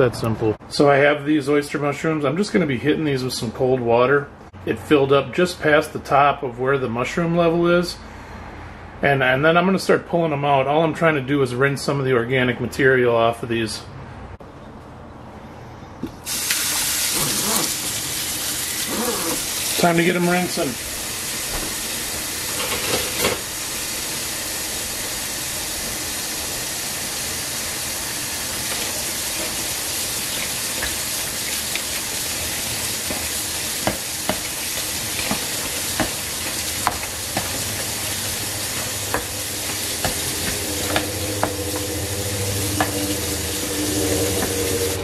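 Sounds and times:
tap water running into bowl: 0:27.6 - 0:45.0.

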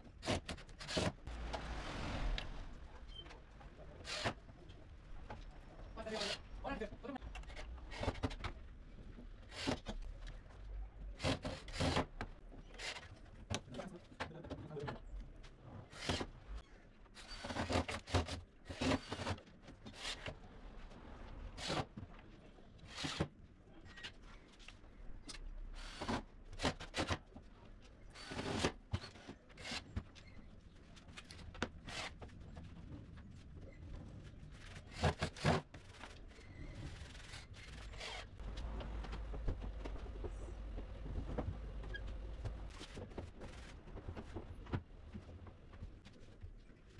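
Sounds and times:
low steady rumble: 0:01.3 - 0:04.0, 0:37.8 - 0:42.8.

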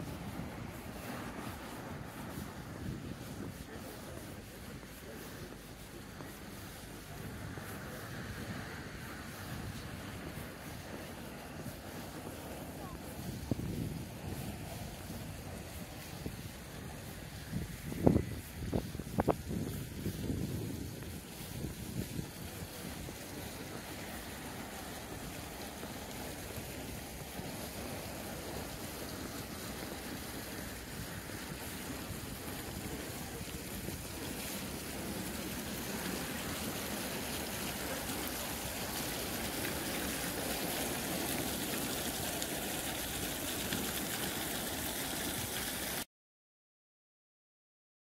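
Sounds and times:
steady rushing noise: 0:00.0 - 0:46.1.

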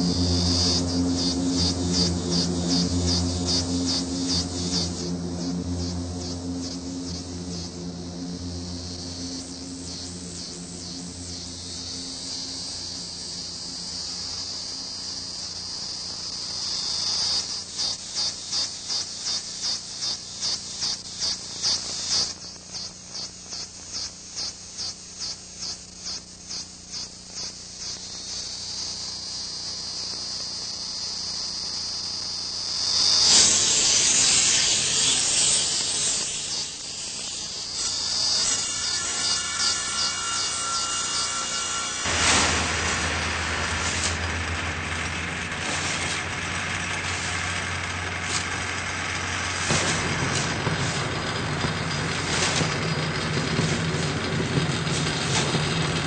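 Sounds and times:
electronic hiss and pulses: 0:00.0 - 0:56.0
loud rush of noise: 0:42.1 - 0:56.0.

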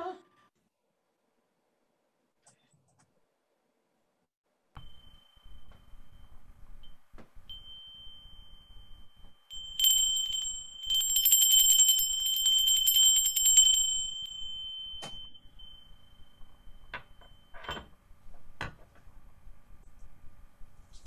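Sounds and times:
handbell ringing: 0:07.5 - 0:17.8.

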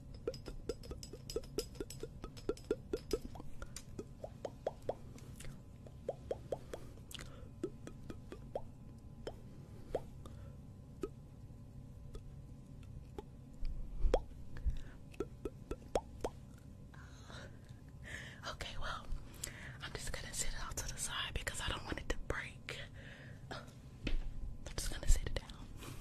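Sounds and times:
fingernails popping on microphone: 0:00.1 - 0:05.0.

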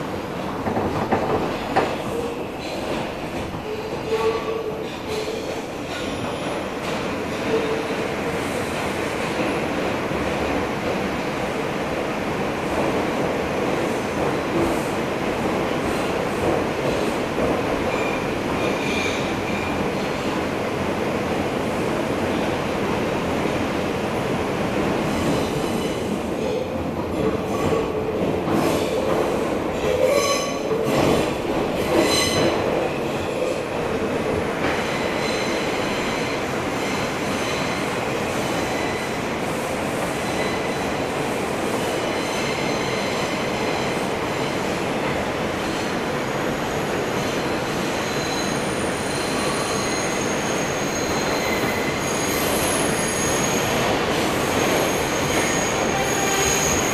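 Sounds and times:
subway train rumbling in tunnel: 0:00.0 - 0:56.9
train wheels squealing on rails: 0:17.9 - 0:20.3, 0:25.0 - 0:26.7, 0:29.8 - 0:33.7, 0:34.6 - 0:44.8, 0:45.6 - 0:56.9.

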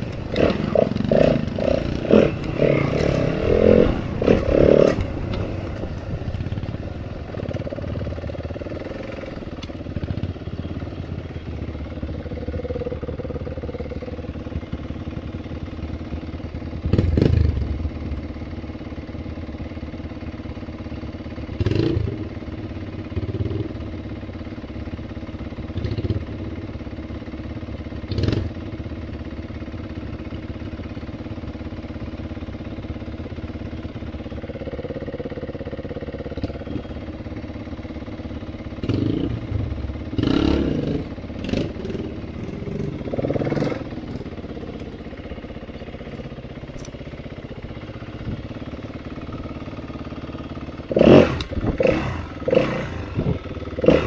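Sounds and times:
dirt bike engine revving: 0:00.0 - 0:11.0, 0:16.8 - 0:17.8, 0:21.5 - 0:22.3, 0:28.1 - 0:28.6, 0:38.8 - 0:44.4, 0:50.6 - 0:54.0
dirt bike engine idling: 0:00.0 - 0:54.0.

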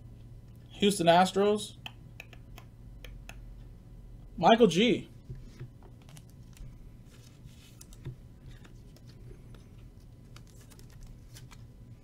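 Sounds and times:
cards flicked and shuffled: 0:05.3 - 0:11.6.

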